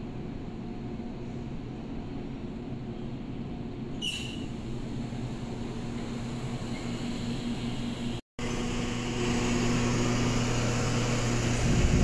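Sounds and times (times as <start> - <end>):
machine hum: 4.5 - 12.0.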